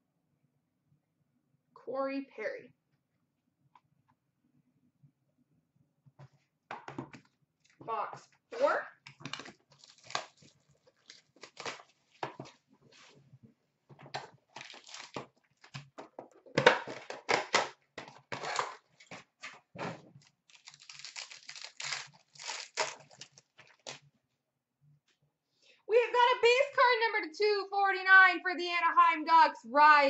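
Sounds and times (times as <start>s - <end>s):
card pack wrapping crinkling and tearing: 9.1s - 12.2s, 14.5s - 15.7s, 20.2s - 24.0s.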